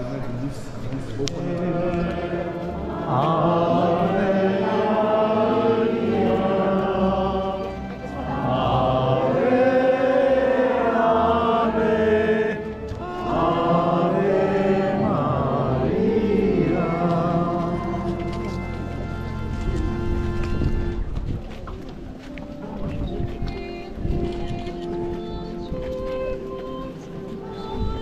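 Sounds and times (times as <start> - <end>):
chant sung: 0.0 - 19.3.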